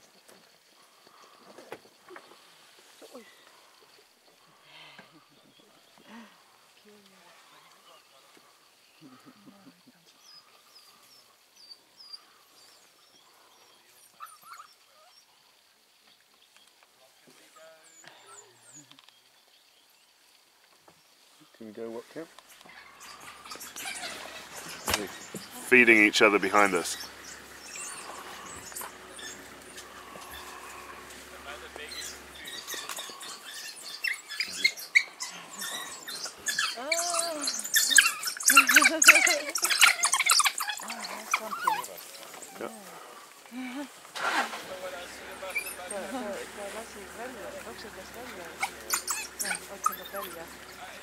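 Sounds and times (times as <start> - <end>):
rustling: 20.2 - 51.0
high animal chirps: 22.6 - 42.6, 45.3 - 50.9
squeaky animal calls: 22.7 - 42.6, 45.3 - 51.0.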